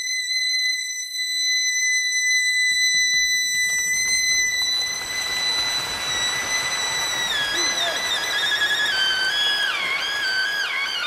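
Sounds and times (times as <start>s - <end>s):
suona holding high note: 2.9s - 11.0s
audience applause: 3.6s - 11.0s.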